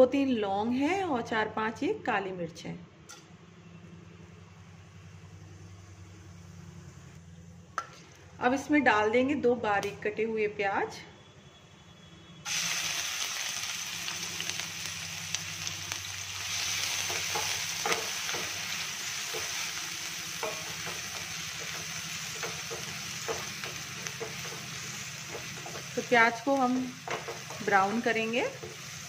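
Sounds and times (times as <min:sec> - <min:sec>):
onions sizzling in hot oil: 0:12.4 - 0:29.0.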